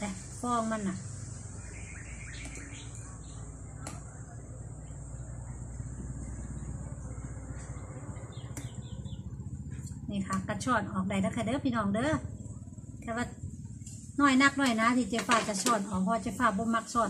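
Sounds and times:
low steady hum: 0:00.0 - 0:17.0
short bird chirps: 0:01.7 - 0:03.2.

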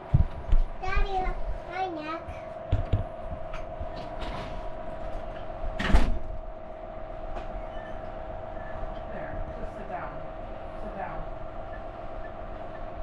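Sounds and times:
steady hum: 0:00.0 - 0:13.0
door knock: 0:02.7 - 0:03.1.

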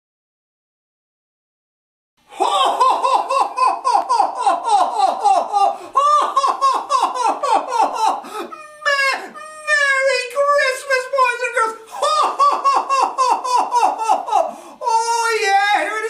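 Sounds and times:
man belly laughing: 0:02.3 - 0:09.8, 0:11.9 - 0:15.1.

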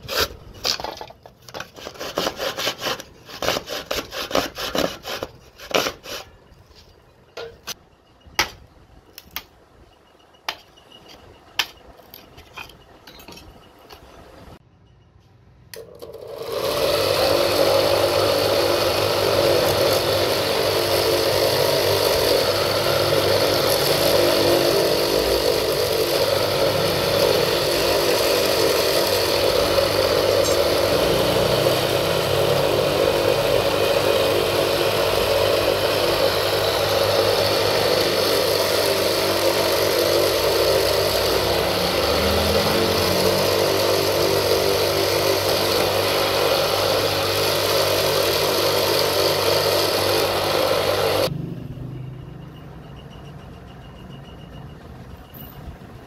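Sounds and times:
electric drill boring wood: 0:15.8 - 0:51.3.

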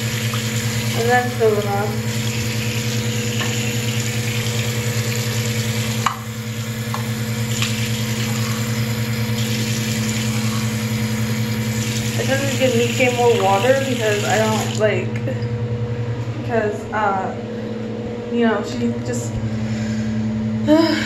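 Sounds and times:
tap water splashing: 0:00.0 - 0:06.3, 0:06.9 - 0:10.7
low hum: 0:00.0 - 0:21.0.

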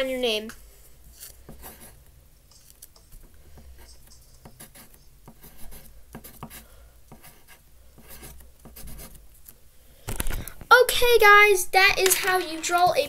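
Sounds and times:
pen scratching on paper: 0:01.2 - 0:09.3.

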